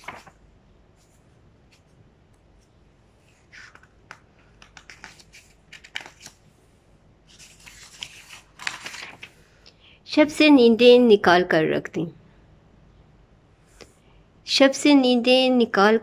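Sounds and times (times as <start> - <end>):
paper pages rustling: 0.0 - 0.4, 1.0 - 6.5, 7.3 - 9.4
small page clicks: 0.0 - 0.4, 3.6 - 6.4.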